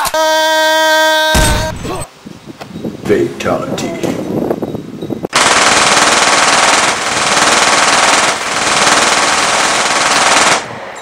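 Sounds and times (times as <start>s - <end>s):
automatic machine-gun fire: 5.3s - 10.7s.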